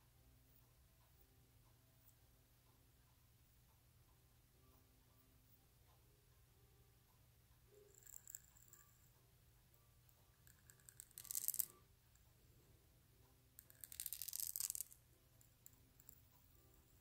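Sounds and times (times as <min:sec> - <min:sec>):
pen nib scratching paper: 0:10.4 - 0:11.7.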